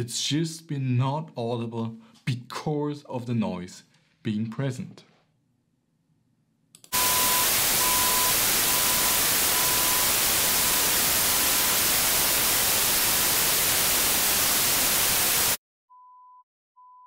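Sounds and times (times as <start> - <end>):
test tone beeping: 6.9 - 11.0
white noise hissing: 6.9 - 15.6.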